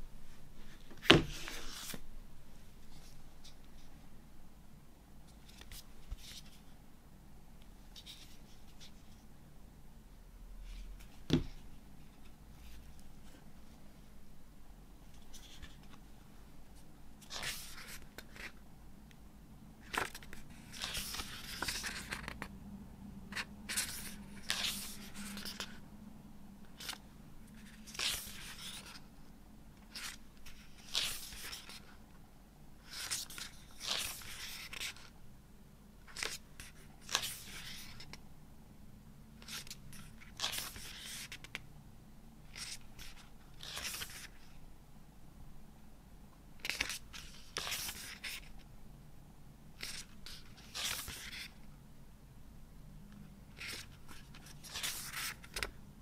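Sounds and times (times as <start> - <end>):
book pages turning: 0.7 - 2.0, 15.2 - 16.0, 17.2 - 18.6, 19.8 - 22.5, 23.3 - 25.8, 26.7 - 29.1, 29.9 - 32.0, 32.8 - 35.1, 36.0 - 38.2, 39.4 - 41.6, 42.5 - 44.5, 46.6 - 48.6, 49.8 - 51.6, 53.5 - 55.8.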